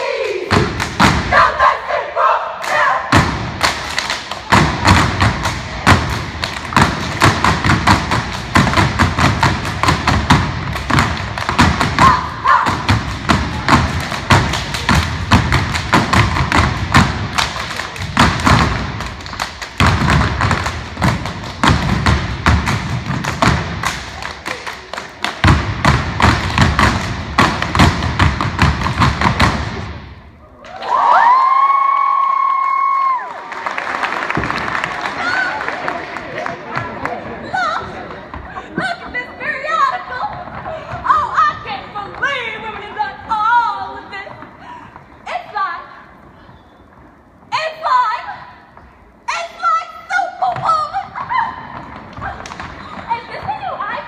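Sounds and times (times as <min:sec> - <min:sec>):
hand claps: 0:03.6 - 0:08.8.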